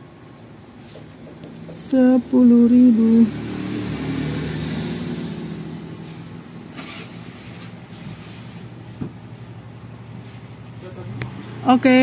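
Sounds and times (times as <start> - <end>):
vehicle engine passing by: 1.6 - 9.0, 9.9 - 12.0.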